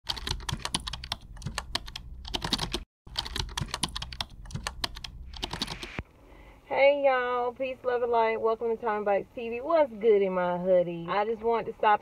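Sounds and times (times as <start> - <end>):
keyboard typing: 0.1 - 6.0.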